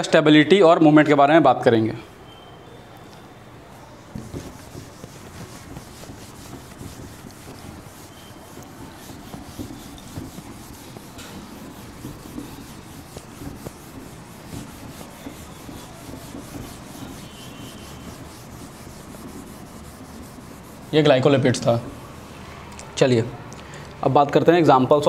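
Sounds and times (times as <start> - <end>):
duster rubbing on whiteboard: 4.1 - 22.4.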